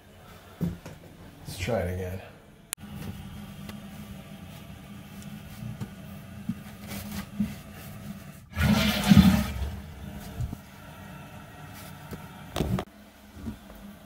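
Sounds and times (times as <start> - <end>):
paper towels rustling: 2.9 - 8.5
toilet flushing: 8.0 - 12.9.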